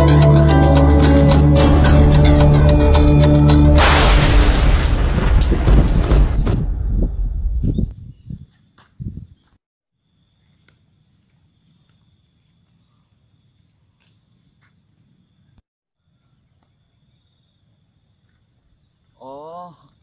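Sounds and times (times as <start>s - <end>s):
low thumps: 1.7s - 8.4s.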